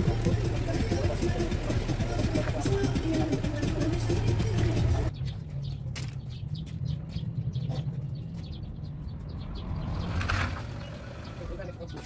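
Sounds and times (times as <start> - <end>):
small birds chirping: 0.0 - 12.0
noisy passage: 8.6 - 11.5.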